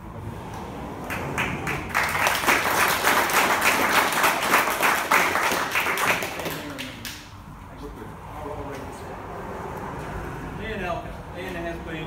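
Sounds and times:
audience applauding: 0:01.0 - 0:07.2.

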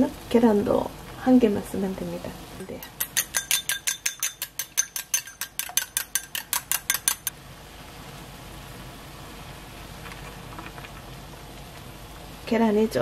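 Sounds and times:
broth bubbling in a pot: 0:00.0 - 0:13.0
utensil clinking against glass bowl: 0:02.8 - 0:07.3.

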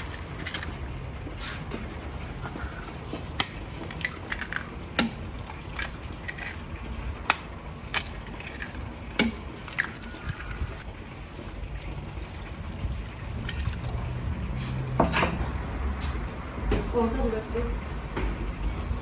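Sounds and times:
eggshells cracking: 0:00.0 - 0:00.9, 0:03.4 - 0:10.8.

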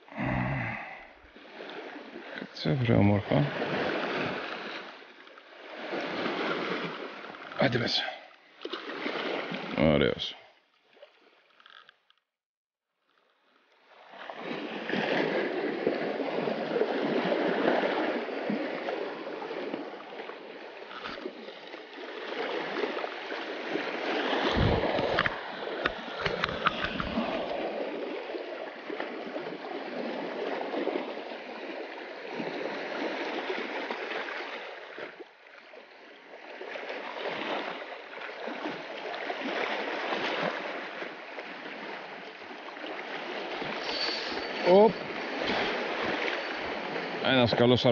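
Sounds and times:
waves lapping on pebbly shore: 0:01.2 - 0:10.3, 0:13.0 - 0:47.9
thumps on microphone: 0:24.5 - 0:25.3.

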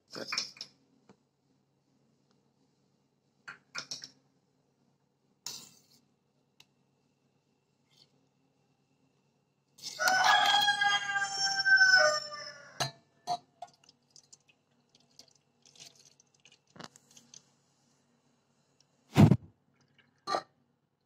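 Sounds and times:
rooster crowing: 0:10.0 - 0:12.8.

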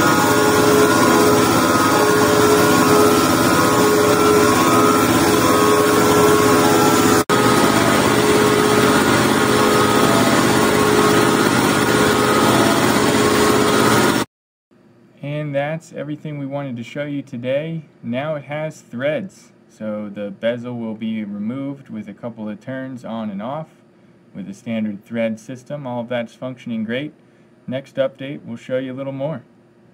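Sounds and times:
mill machining metal: 0:00.0 - 0:14.2.

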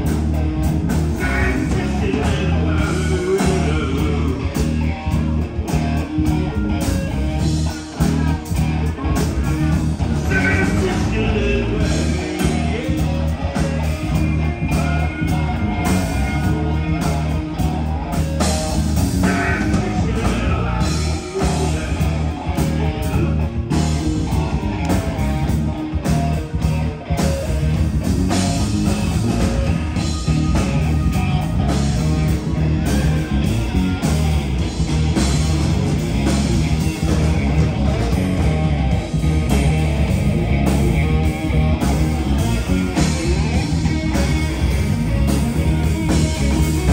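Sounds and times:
bass guitar: 0:00.0 - 0:46.9
drum kit: 0:00.0 - 0:46.9
electric guitars: 0:00.0 - 0:46.9.

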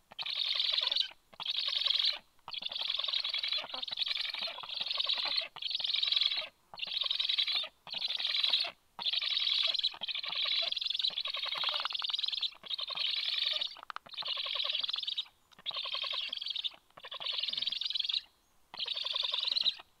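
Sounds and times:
young storks calling: 0:00.1 - 0:19.9.

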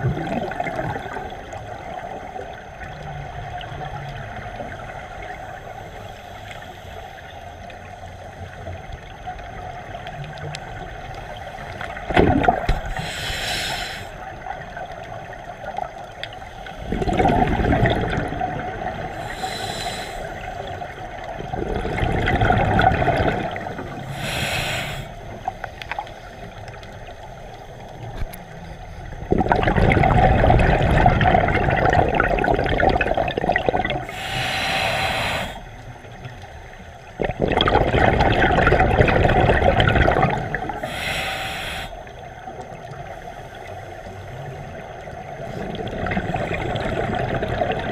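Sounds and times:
gurgling exhaust bubbles: 0:00.0 - 0:03.9, 0:11.9 - 0:13.0, 0:16.8 - 0:19.3, 0:20.6 - 0:24.4, 0:29.2 - 0:34.1, 0:37.0 - 0:41.0, 0:44.6 - 0:47.9
regulator inhale hiss: 0:05.5 - 0:08.7, 0:12.7 - 0:14.4, 0:16.3 - 0:17.1, 0:19.0 - 0:21.1, 0:23.8 - 0:27.9, 0:34.0 - 0:37.1, 0:40.6 - 0:44.4.

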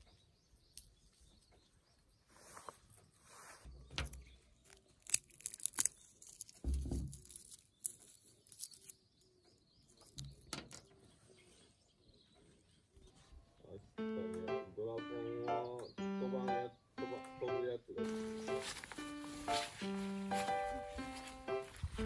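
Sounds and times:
peanut shells cracking: 0:04.0 - 0:09.3, 0:09.9 - 0:10.9.

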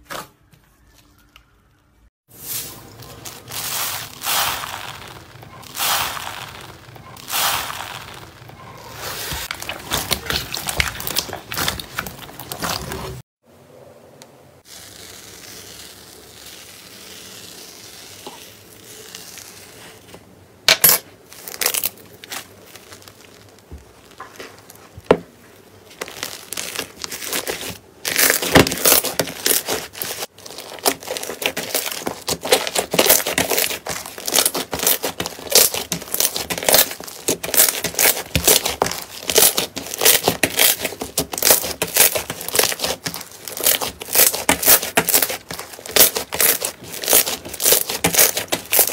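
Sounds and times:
slime crackling and popping: 0:02.8 - 0:13.2, 0:21.3 - 0:25.2, 0:25.9 - 0:48.9.

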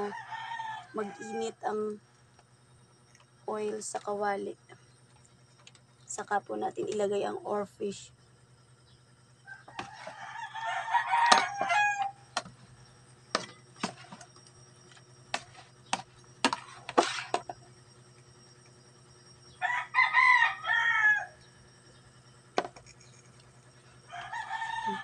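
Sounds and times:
rooster crowing: 0:00.0 - 0:01.6, 0:09.4 - 0:12.4, 0:19.6 - 0:21.8, 0:24.0 - 0:25.0.

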